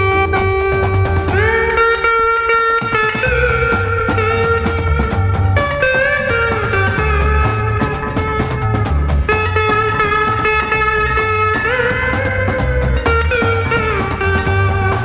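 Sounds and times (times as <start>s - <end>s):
electric guitar melody: 0.0s - 15.0s
low bass beat: 0.0s - 15.0s.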